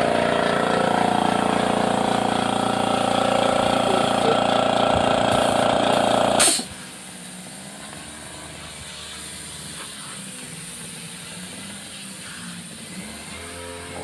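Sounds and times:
air compressor running: 0.0s - 14.0s
sharp hiss of released air: 5.2s - 7.7s, 8.6s - 12.9s.

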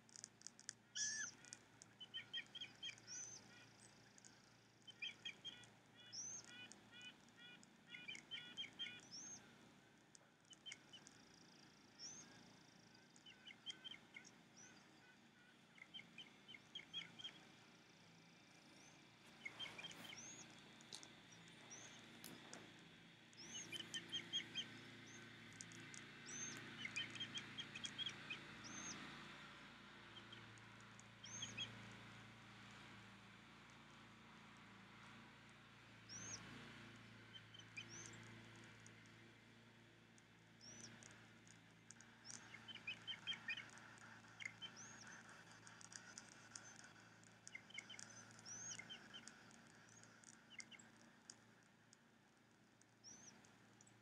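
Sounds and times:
small ticks: 0.0s - 54.0s
thin whistled bird notes: 0.1s - 9.5s, 10.5s - 17.6s, 18.6s - 22.7s, 23.3s - 29.2s, 31.2s - 31.8s, 36.1s - 36.4s, 37.4s - 38.5s, 41.9s - 51.5s, 53.0s - 54.0s
bird chirping: 0.1s - 9.6s, 10.4s - 29.2s, 30.1s - 31.8s, 36.1s - 38.7s, 40.6s - 54.0s.

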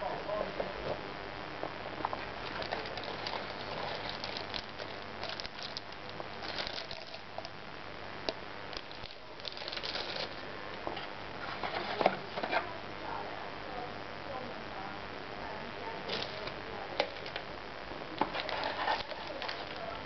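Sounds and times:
plastic bags crinkling: 2.0s - 7.6s, 8.7s - 12.4s, 16.1s - 17.5s, 18.1s - 20.0s
paper rustling: 2.5s - 7.5s, 8.8s - 10.4s, 11.0s - 12.7s, 18.2s - 20.0s.

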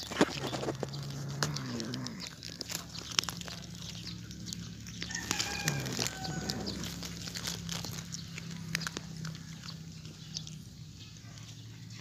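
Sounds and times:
crunching and tearing of bird: 0.0s - 12.0s
cat growling: 0.5s - 3.9s, 5.1s - 9.6s
chicken calling: 4.9s - 9.4s.

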